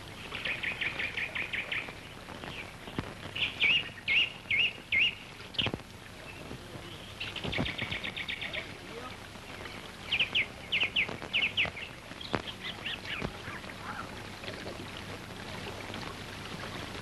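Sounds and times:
birds singing: 0.3 - 8.8, 9.5 - 14.2
wavering whistled bird notes: 3.4 - 5.2.

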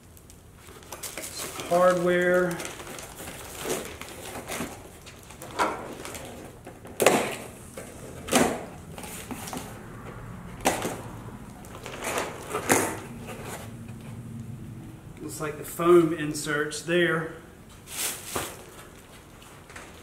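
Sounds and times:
packaging rustling: 0.0 - 9.8, 10.6 - 13.8, 17.9 - 20.0.

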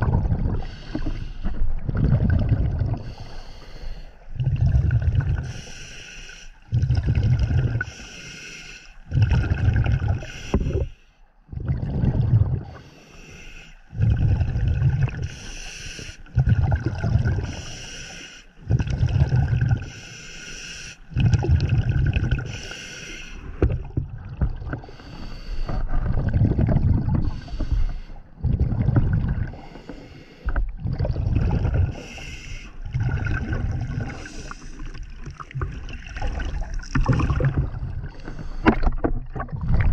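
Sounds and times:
exhaled bubble bursts: 0.0 - 0.8, 1.7 - 3.2, 4.3 - 5.5, 6.7 - 7.9, 9.1 - 10.8, 11.5 - 12.8, 14.0 - 15.3, 16.3 - 17.6, 18.6 - 19.8, 21.1 - 22.6, 25.8 - 27.5, 28.4 - 29.6, 30.6 - 39.9
diver breathing through regulator: 0.6 - 1.7, 3.0 - 4.3, 5.4 - 6.7, 7.8 - 9.1, 10.1 - 11.2, 12.6 - 14.4, 15.1 - 16.4, 17.2 - 18.7, 19.7 - 21.6, 22.3 - 23.9, 24.7 - 26.3, 27.1 - 30.8, 31.5 - 35.1, 37.0 - 39.2.

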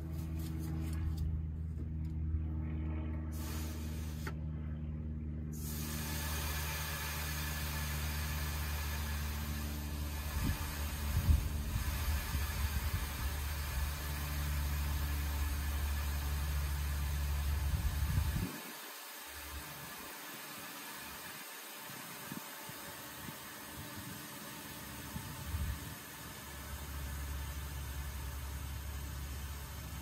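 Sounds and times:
steady low drone: 0.0 - 20.0
air hissing from air spring: 3.4 - 4.4, 5.6 - 30.0.

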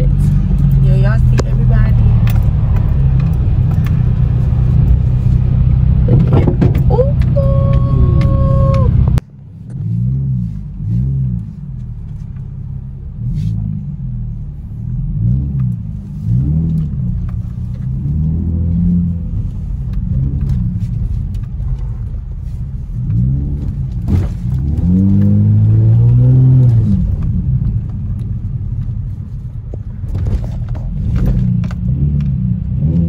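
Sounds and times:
car rumble inside cabin: 0.0 - 33.0.

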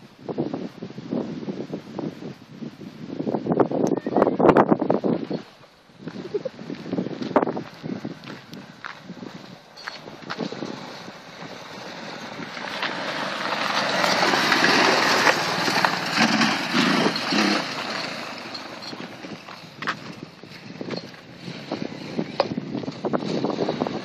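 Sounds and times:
quad bike engine passing by: 9.1 - 24.0.

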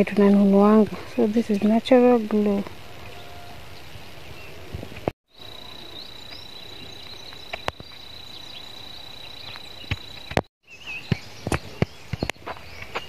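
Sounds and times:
insect high-pitched trill: 5.3 - 10.4
insect short chirps: 5.3 - 10.4.

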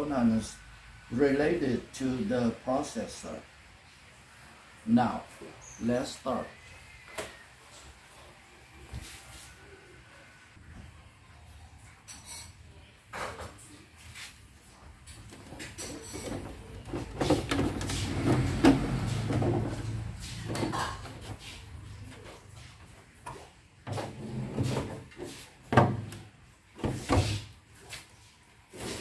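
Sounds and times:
plastic scraping on plastic: 15.3 - 21.4.

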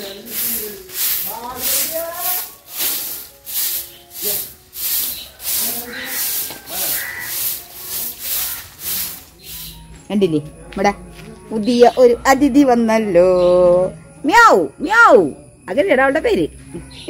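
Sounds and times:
broom sweeping leaves and grit: 0.0 - 10.0.

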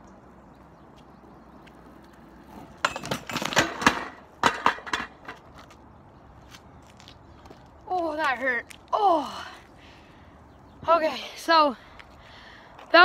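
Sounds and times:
skateboard clattering on pavement: 1.7 - 5.8
skateboard knocking and scraping rail: 2.0 - 5.8.

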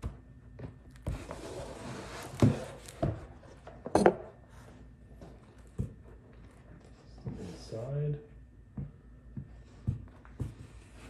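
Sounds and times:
cardboard rubbing and rustling: 1.1 - 3.1.

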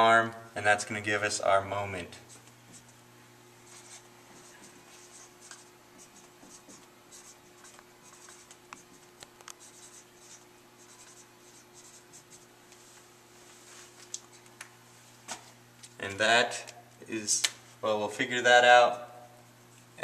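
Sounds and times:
marker writing on whiteboard: 3.7 - 12.5.

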